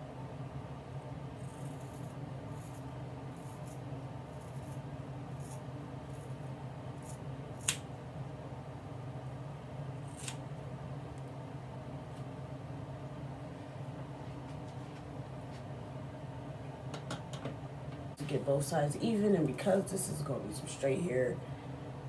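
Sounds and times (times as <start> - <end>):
scissors snipping hair: 7.0 - 7.8, 10.1 - 10.4.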